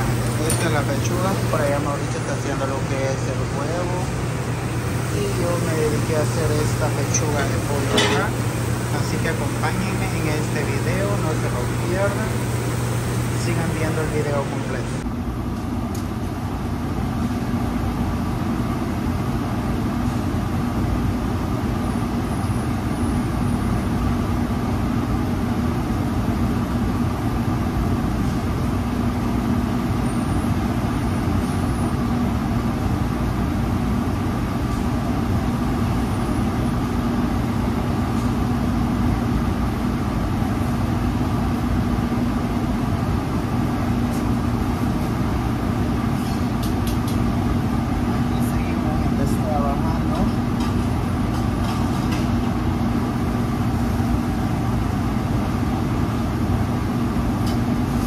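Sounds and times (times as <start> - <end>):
exhaust hood fan droning: 0.0 - 58.0.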